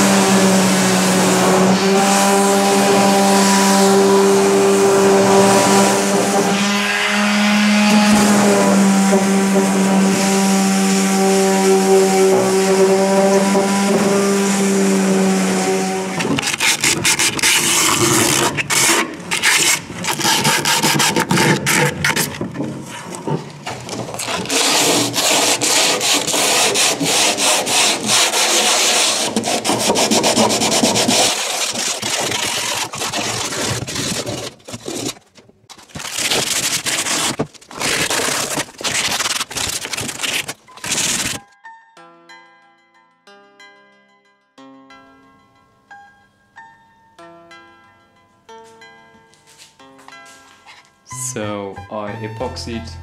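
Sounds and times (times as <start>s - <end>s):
sandpaper rubbed on wood: 8.0s - 22.3s, 24.2s - 35.2s, 36.0s - 41.4s.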